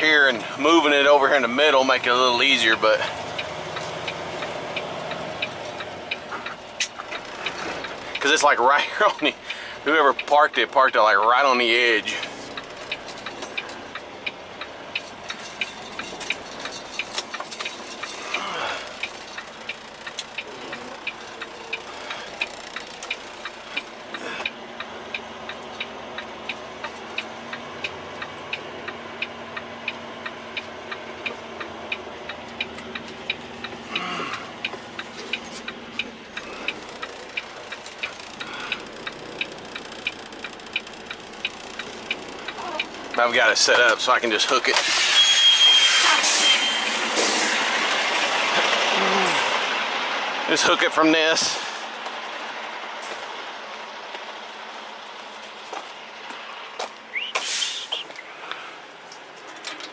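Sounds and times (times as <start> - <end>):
diesel engine running: 0.0 - 59.9
turn signal clicking: 3.0 - 8.5, 12.1 - 44.0.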